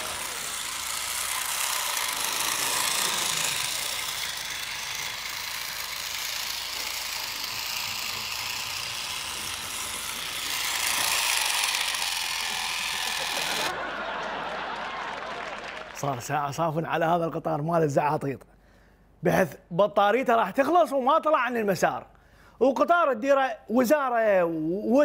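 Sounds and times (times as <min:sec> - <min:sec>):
toy train motor whirring: 0:00.0 - 0:13.8.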